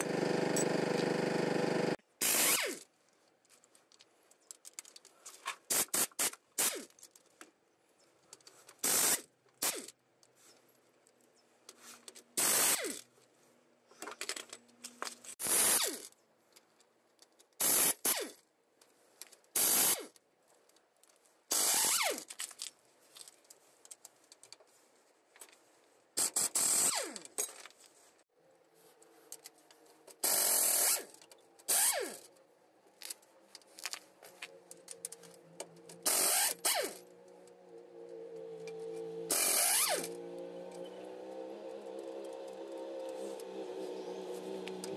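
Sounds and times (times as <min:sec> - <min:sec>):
impact wrench bursts: 0:00.0 - 0:02.8, 0:08.8 - 0:09.9, 0:12.4 - 0:13.0, 0:15.4 - 0:16.1, 0:17.6 - 0:18.4, 0:19.6 - 0:20.1, 0:21.5 - 0:22.3, 0:26.2 - 0:27.3, 0:30.2 - 0:32.3, 0:36.0 - 0:37.1, 0:39.3 - 0:40.2.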